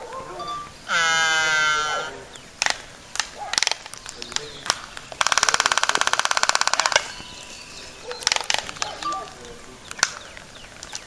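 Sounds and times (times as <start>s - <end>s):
albatross calls: 0.2s - 2.4s, 8.0s - 9.4s
albatross bill-clapping clatter: 8.1s - 11.0s.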